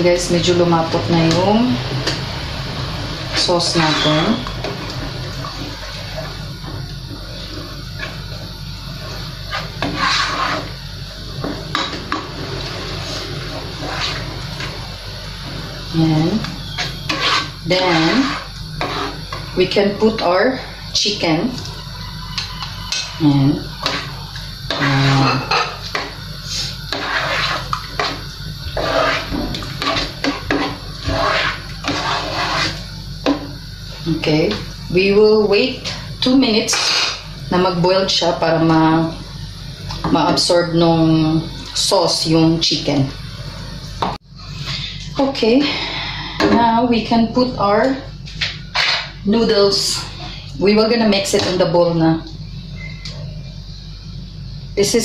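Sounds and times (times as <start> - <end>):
low steady hum: 0.0 - 55.0
metal spoon scraping a pot: 3.3 - 4.8, 9.4 - 10.8, 13.0 - 14.7, 16.6 - 19.5, 23.8 - 32.8
spoon stirring thick sauce in pot: 16.7 - 19.5, 26.9 - 28.2, 28.8 - 32.8.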